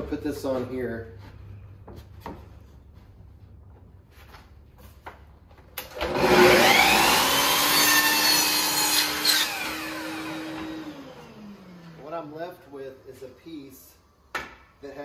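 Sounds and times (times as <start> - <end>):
miter saw blade whine: 6.1 - 12.0.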